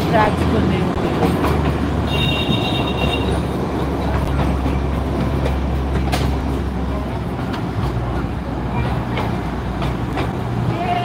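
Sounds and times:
train carriage rumbling: 0:00.0 - 0:11.0
train wheel clatter: 0:00.0 - 0:11.0.

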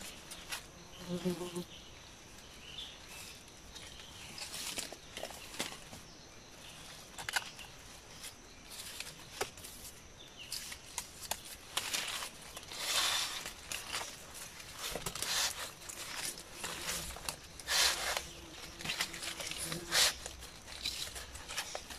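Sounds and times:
palm leaf strips rustling: 0:03.0 - 0:06.1, 0:06.7 - 0:21.9.

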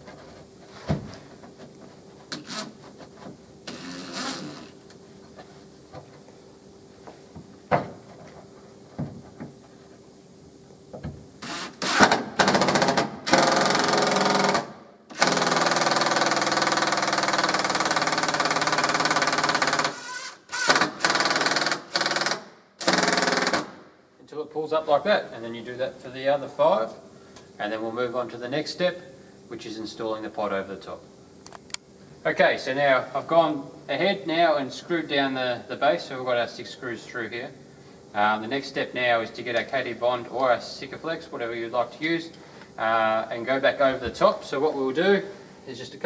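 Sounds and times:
cordless drill driving screws: 0:03.7 - 0:04.8, 0:11.4 - 0:23.7.

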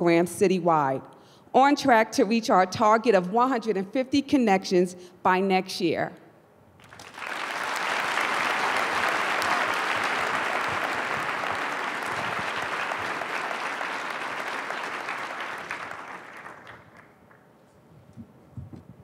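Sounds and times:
audience applause: 0:06.8 - 0:17.4.

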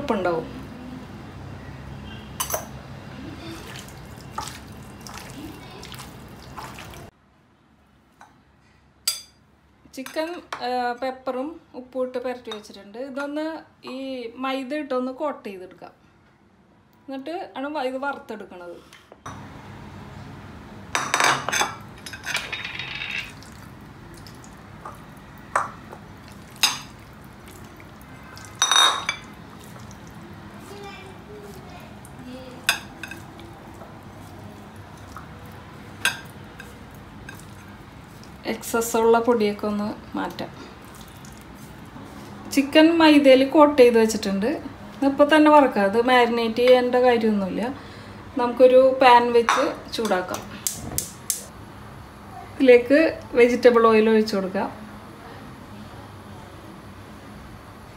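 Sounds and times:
wet squishing of raw chicken: 0:03.5 - 0:07.1, 0:26.0 - 0:28.6, 0:29.2 - 0:30.7, 0:40.8 - 0:42.3
glass bowls clinking: 0:21.0 - 0:23.5, 0:28.3 - 0:29.9.

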